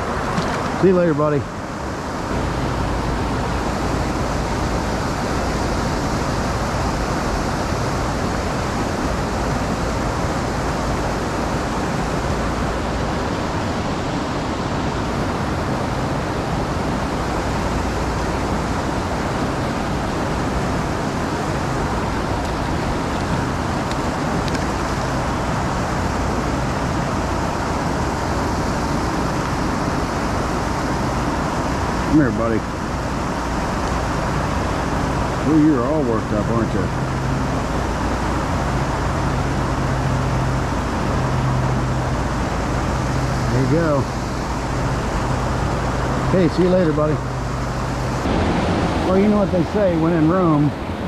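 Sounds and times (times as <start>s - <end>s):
creek water flowing: 0.0s - 51.0s.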